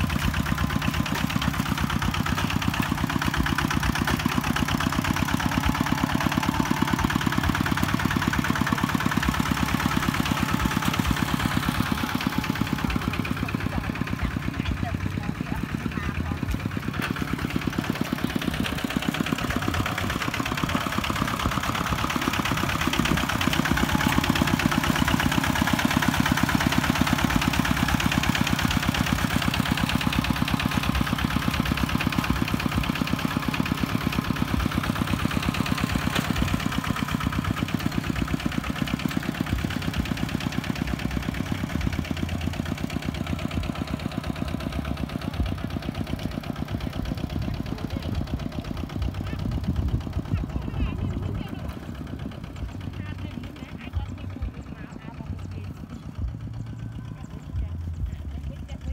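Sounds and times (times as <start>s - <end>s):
tractor engine chugging: 0.0s - 58.9s.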